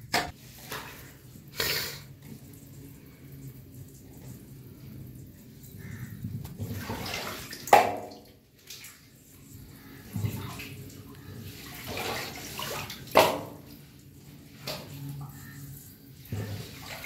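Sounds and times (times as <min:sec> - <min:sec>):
sewage water sloshing: 0:00.1 - 0:17.0
loud water splashes: 0:06.7 - 0:08.8.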